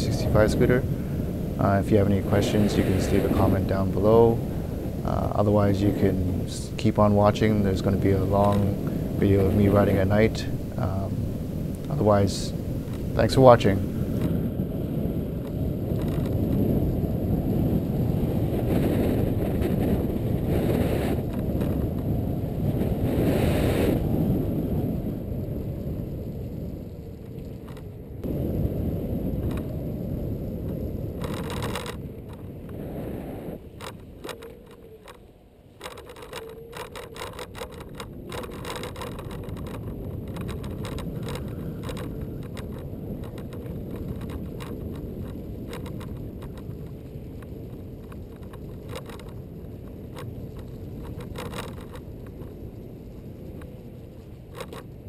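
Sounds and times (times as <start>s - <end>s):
tyres rumbling on path: 0.0s - 55.0s
wind: 0.0s - 55.0s
rattling clicks: 31.2s - 32.8s, 33.8s - 52.6s, 53.5s - 55.0s.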